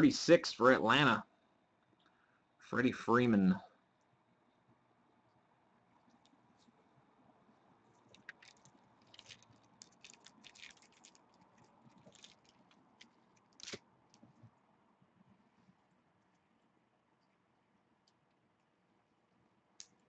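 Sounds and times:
foil wrappers crinkling: 8.0s - 14.2s.

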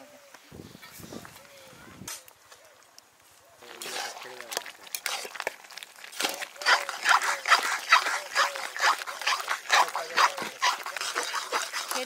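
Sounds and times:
metal ladle scraping steel pan: 3.8s - 12.0s.

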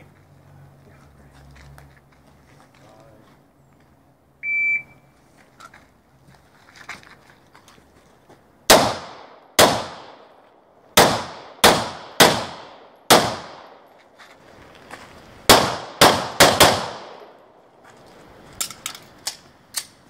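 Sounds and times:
handgun shots: 8.7s - 10.2s, 11.0s - 13.8s, 15.5s - 17.3s.

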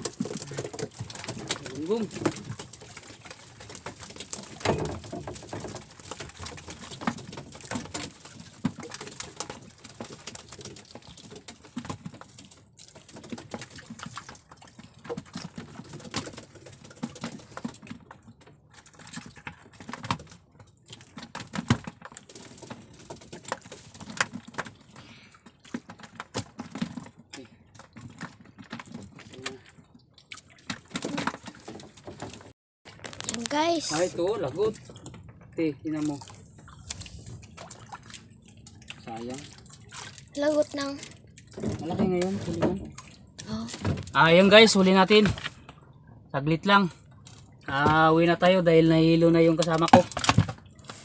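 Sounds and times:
thumps in wooden boat: 4.4s - 8.8s, 43.7s - 44.2s, 49.9s - 50.6s.

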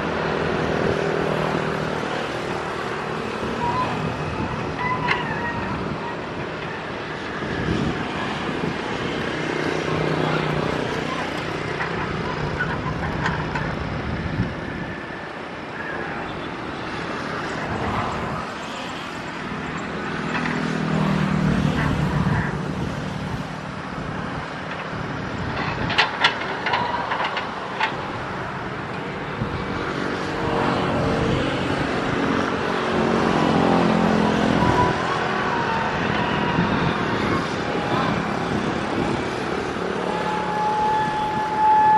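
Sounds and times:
excavator diesel engine: 19.2s - 41.9s.

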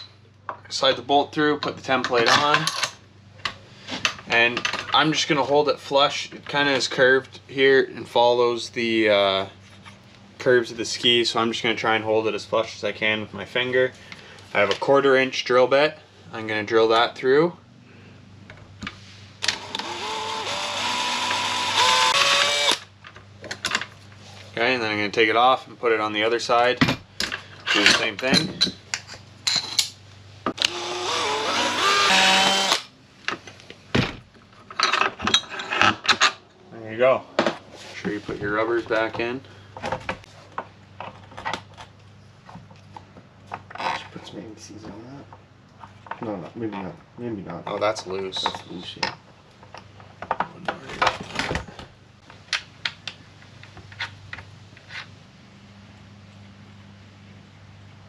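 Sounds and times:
cordless drill drilling plastic: 19.4s - 22.9s, 30.6s - 32.9s.

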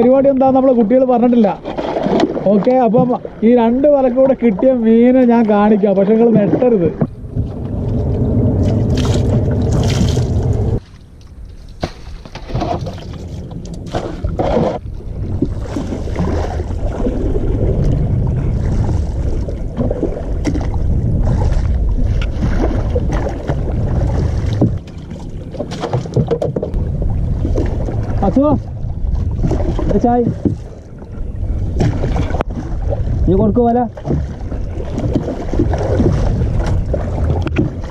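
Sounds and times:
oars knocking and splashing: 0.0s - 37.9s
wind noise on microphone: 1.4s - 37.9s.

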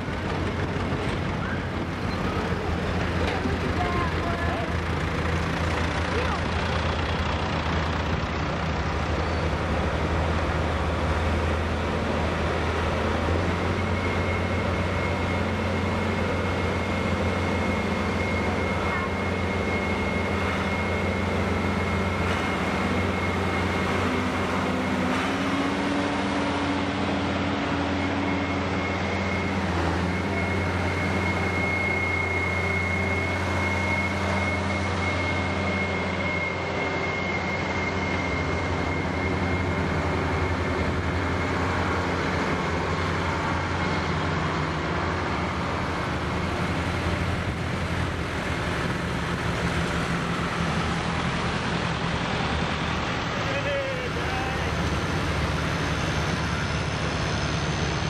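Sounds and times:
diesel tractors driving past: 0.0s - 58.0s
high steady whine: 26.4s - 58.0s.

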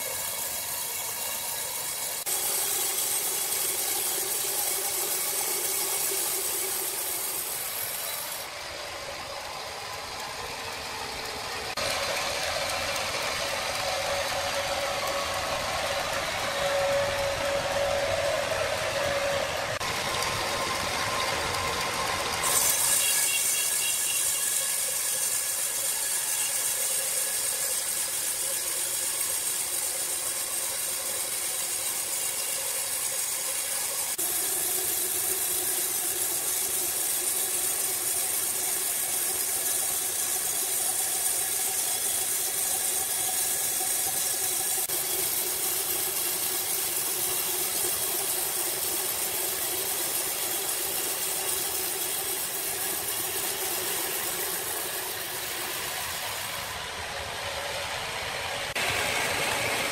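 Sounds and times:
band saw whining and hissing: 0.0s - 59.9s.

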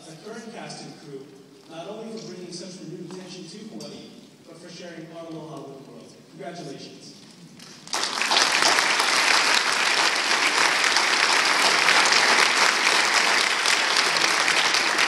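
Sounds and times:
crowd applauding: 7.6s - 15.0s.

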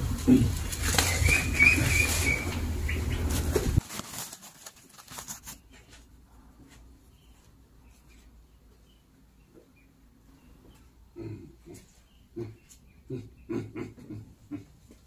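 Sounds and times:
plastic sack rustling: 0.2s - 6.0s.

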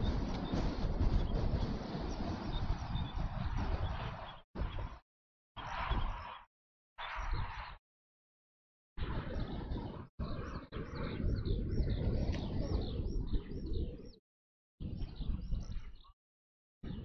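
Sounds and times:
small birds chirping: 9.2s - 14.2s, 14.8s - 16.2s.

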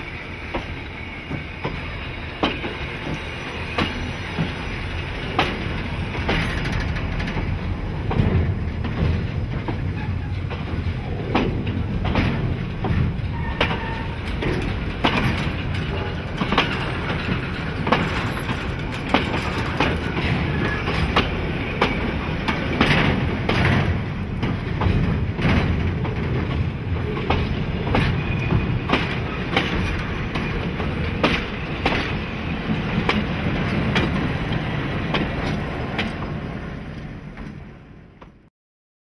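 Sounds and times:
wheel clicks over rail joints: 5.4s - 9.9s, 11.3s - 28.2s.

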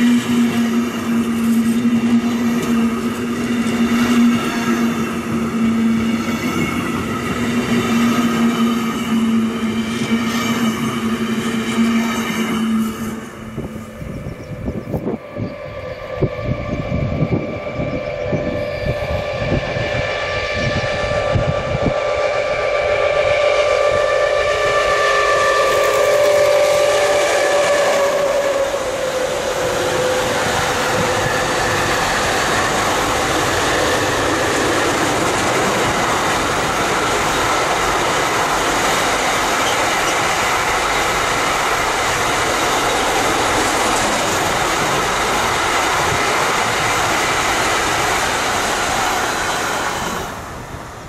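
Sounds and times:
locomotive horn: 0.0s - 6.8s, 7.4s - 14.3s, 14.9s - 41.6s
train wheels clattering on rails: 0.0s - 14.0s, 25.5s - 50.7s.

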